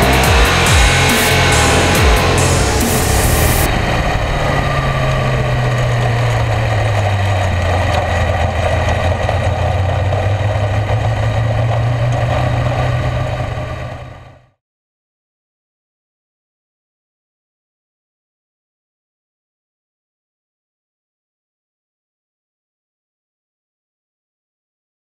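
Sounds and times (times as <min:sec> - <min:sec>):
race car engine running: 0:00.0 - 0:14.5.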